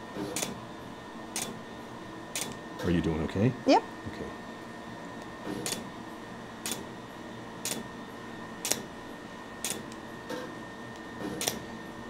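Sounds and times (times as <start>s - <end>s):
laser handpiece snapping: 8.6s - 8.8s.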